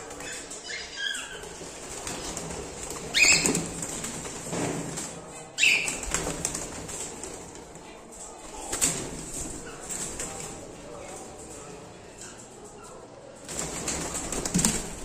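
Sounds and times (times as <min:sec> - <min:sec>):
birds flapping wings: 0:01.4 - 0:10.8, 0:13.4 - 0:15.0.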